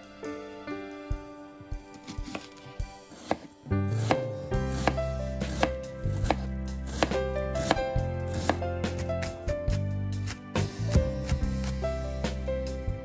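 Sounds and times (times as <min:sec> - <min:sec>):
background music with bass: 0:00.0 - 0:13.0
knife chopping on wooden board: 0:02.0 - 0:11.8.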